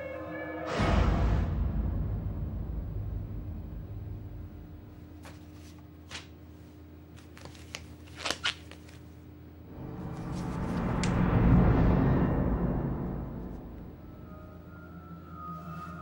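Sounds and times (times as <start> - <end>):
low steady drone: 0.7 - 5.6, 9.6 - 16.0
deep rumble: 0.8 - 5.6, 9.6 - 15.2.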